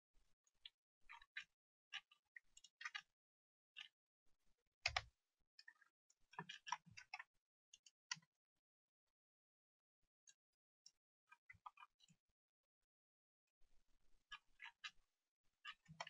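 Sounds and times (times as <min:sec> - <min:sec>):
computer mouse and keyboard clicks: 0:01.1 - 0:03.1, 0:04.8 - 0:05.8, 0:06.4 - 0:08.3, 0:15.7 - 0:16.0.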